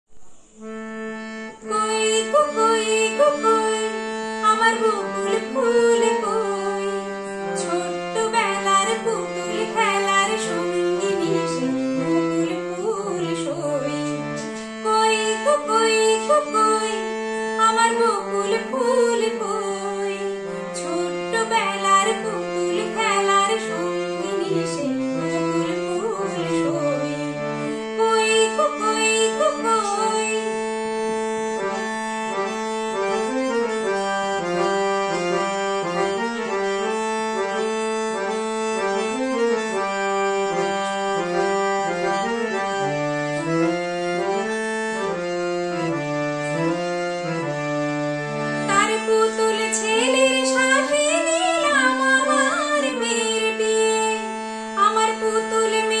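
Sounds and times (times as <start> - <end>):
harmonium melody: 0.4 - 56.0
woman singing: 1.6 - 30.7, 48.7 - 56.0.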